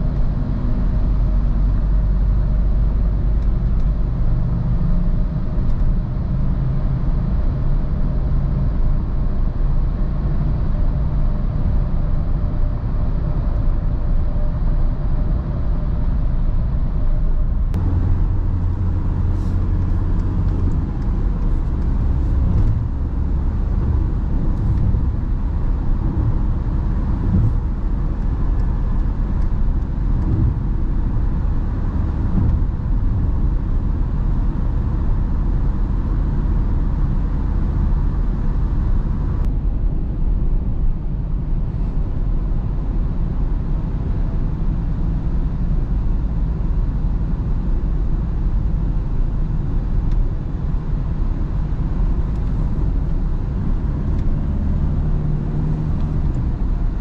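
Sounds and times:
diesel car engine droning: 0:00.0 - 0:57.0
tyre and road noise: 0:09.0 - 0:43.2, 0:49.6 - 0:57.0.

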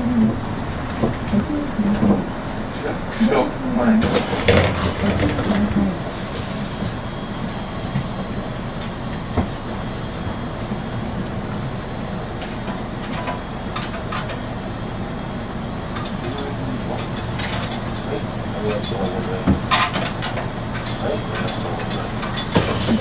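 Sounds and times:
bus engine idling: 0:00.0 - 0:23.0.

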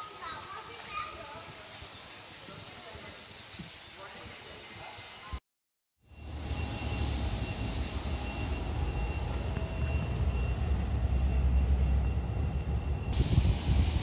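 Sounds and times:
faint steady whine: 0:06.0 - 0:14.0
muffled jet engine rumble: 0:06.2 - 0:14.0
hiss: 0:13.1 - 0:14.0.

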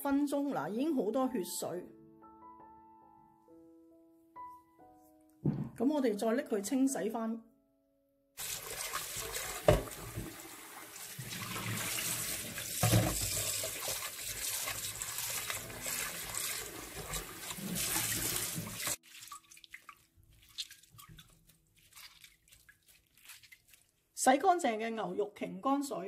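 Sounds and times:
knocks: 0:05.4 - 0:05.8.

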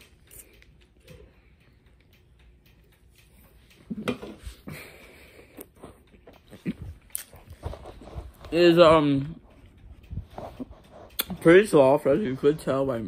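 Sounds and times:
person chewing bread: 0:03.3 - 0:08.4.

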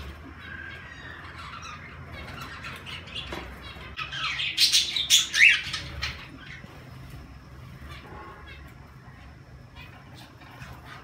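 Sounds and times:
birds chirping and chattering: 0:00.0 - 0:11.0.

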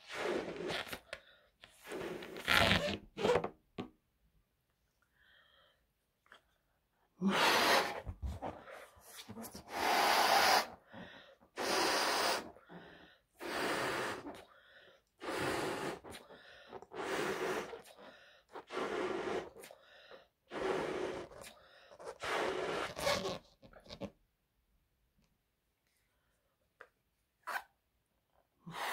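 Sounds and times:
breath puffs into balloon: 0:00.0 - 0:03.2, 0:07.2 - 0:23.5, 0:28.6 - 0:28.9.

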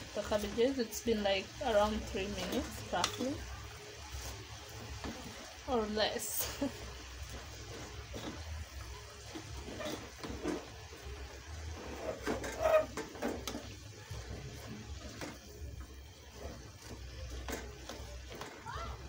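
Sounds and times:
spatula scraping metal pot: 0:01.6 - 0:03.5, 0:06.5 - 0:18.6.

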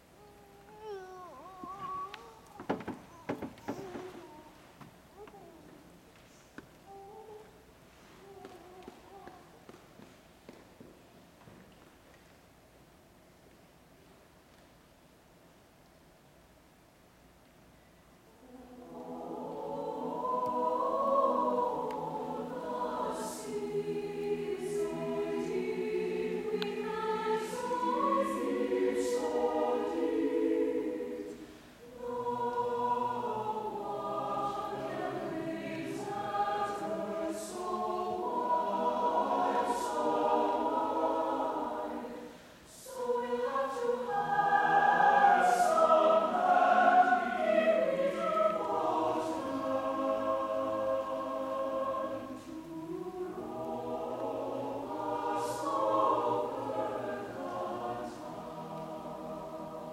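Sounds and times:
mixed choir singing: 0:18.4 - 0:59.9.

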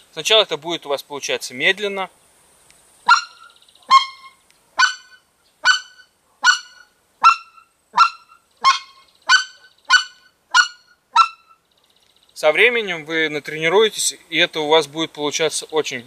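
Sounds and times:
goose call clucks: 0:03.1 - 0:11.6.

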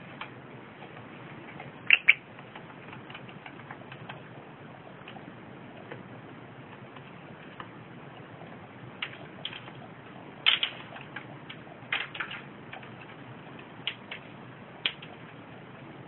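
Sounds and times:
bird beak tapping: 0:01.8 - 0:04.2.

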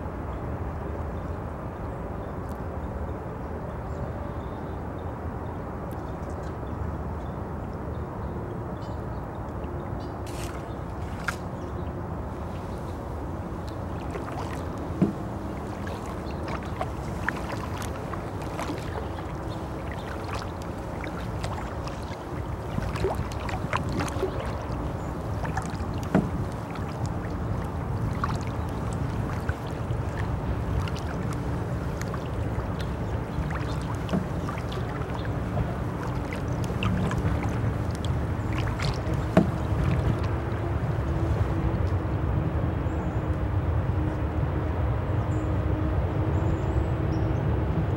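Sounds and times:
paddle strokes splashing: 0:10.2 - 0:42.0.

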